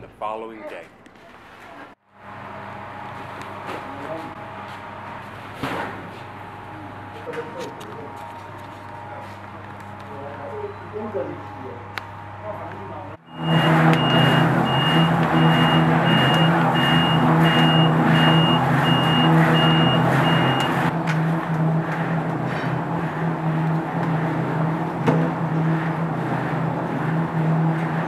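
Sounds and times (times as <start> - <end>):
drum machine mechanical hum: 11.8 - 28.0
high electronic beeps: 13.2 - 20.8.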